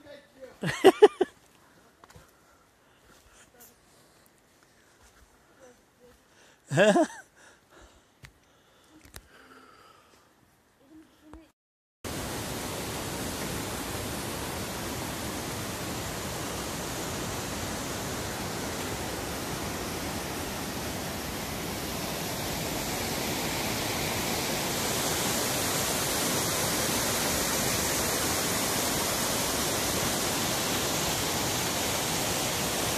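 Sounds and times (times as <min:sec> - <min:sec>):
stream rushing over boulders: 0:12.1 - 0:32.9.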